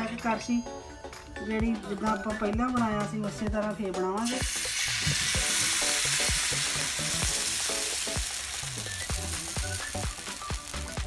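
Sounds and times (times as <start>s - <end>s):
batter sizzling in hot oil: 4.2s - 11.0s.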